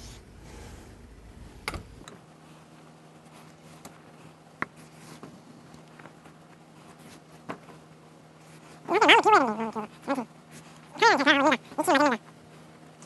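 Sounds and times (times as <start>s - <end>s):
low rumble: 0.0s - 2.0s
steady low hum: 0.0s - 13.0s.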